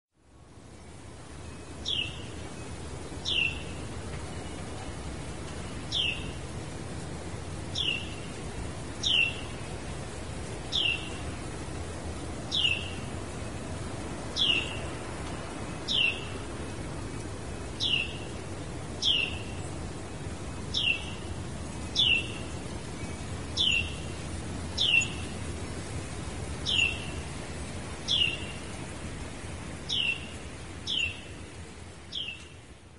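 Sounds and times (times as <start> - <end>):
low background hiss: 0.2 - 32.9
wren calling: 1.7 - 4.0, 5.7 - 6.4, 7.6 - 11.4, 12.5 - 13.6, 14.3 - 15.0, 15.6 - 16.5, 17.6 - 25.4, 26.6 - 27.3, 28.0 - 28.8, 29.8 - 31.4, 32.1 - 32.5.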